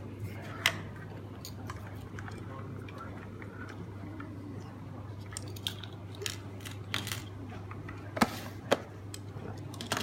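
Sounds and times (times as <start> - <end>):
steady low hum: 0.0 - 10.0
plastic parts clicking and rattling: 5.3 - 7.3, 9.1 - 10.0.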